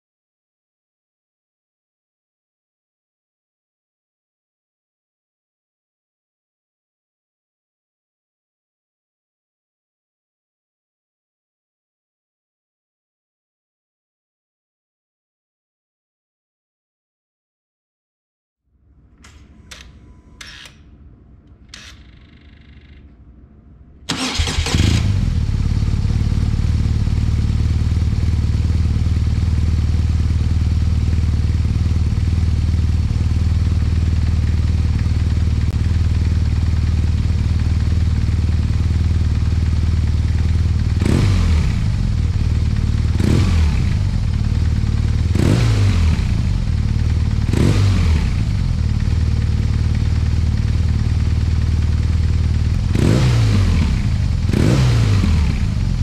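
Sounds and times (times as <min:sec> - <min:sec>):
motorcycle engine idling and revving: 0:24.1 - 0:56.0.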